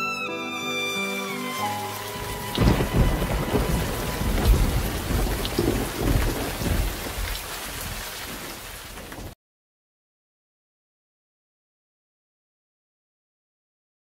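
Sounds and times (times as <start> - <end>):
string music: 0.0 - 5.4
heavy rain: 0.5 - 9.4
rolling thunder: 2.2 - 9.4.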